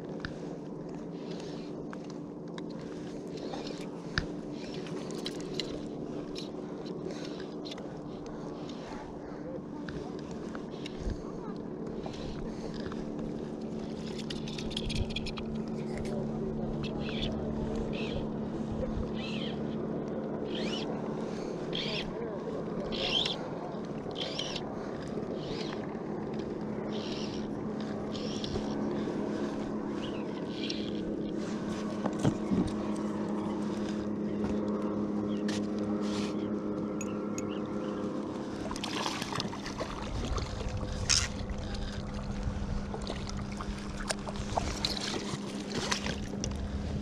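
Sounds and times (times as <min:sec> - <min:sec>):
motorboat engine drone: 0:00.0 - 0:47.0
water splashing: 0:38.4 - 0:46.6.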